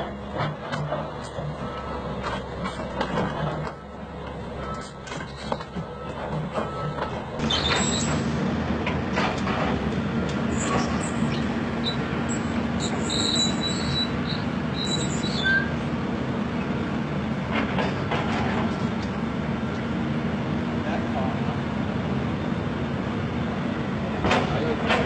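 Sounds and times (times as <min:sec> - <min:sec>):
excavator diesel engine running: 0:00.0 - 0:25.0
high metallic squeals: 0:07.4 - 0:08.2, 0:10.5 - 0:15.8.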